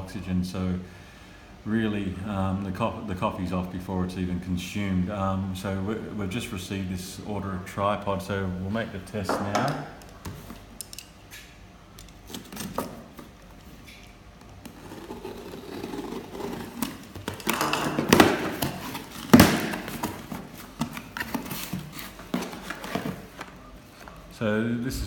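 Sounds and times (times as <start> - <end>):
cardboard box scraping and rustling: 14.7 - 24.0.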